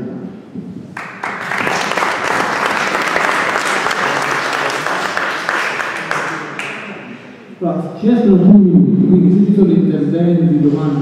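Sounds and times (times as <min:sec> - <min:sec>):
audience applauding: 0:00.9 - 0:07.2.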